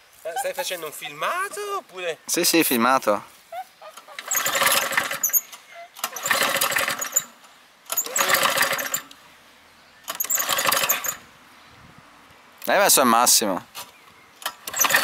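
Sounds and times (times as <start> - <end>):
lawn mower engine pull-started: 4.2 - 9.2, 10.0 - 11.3, 14.4 - 15.0.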